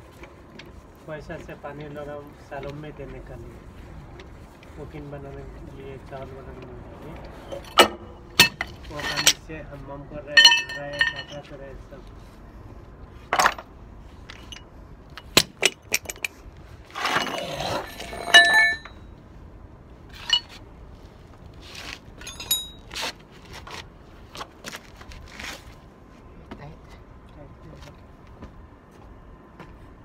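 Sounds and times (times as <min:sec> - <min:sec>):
metal scraping: 0:07.1 - 0:09.5, 0:10.3 - 0:11.5, 0:15.6 - 0:19.0, 0:20.1 - 0:20.6
metal parts clinking: 0:07.5 - 0:09.4, 0:10.4 - 0:11.5, 0:13.3 - 0:13.7, 0:14.3 - 0:16.4, 0:17.0 - 0:19.0, 0:20.1 - 0:20.6, 0:22.2 - 0:23.0.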